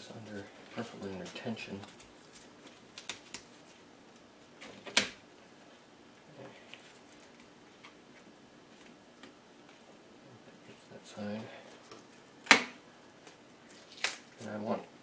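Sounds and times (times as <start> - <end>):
loud sharp snap: 12.4 - 12.8.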